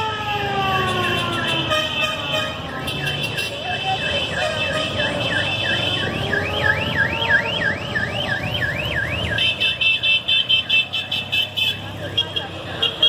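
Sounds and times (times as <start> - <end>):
car engines running: 0.0 - 13.0
electronic car alarm: 4.0 - 10.1.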